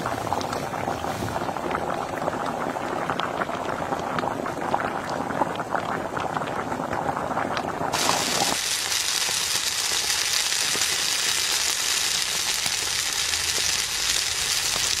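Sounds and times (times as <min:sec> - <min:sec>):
oil sizzling in a frying pan: 0:07.9 - 0:15.0.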